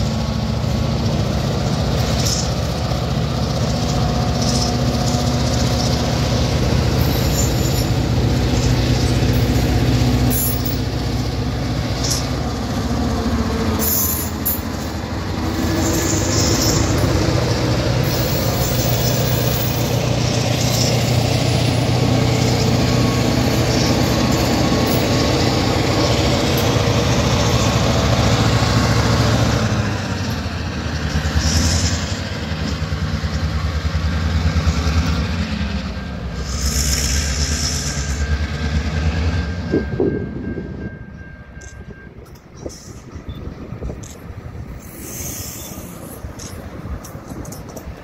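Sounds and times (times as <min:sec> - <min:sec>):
diesel locomotive engines droning: 0:00.0 - 0:48.0
wheels rumbling on rail: 0:00.0 - 0:48.0
air hissing: 0:44.8 - 0:46.4.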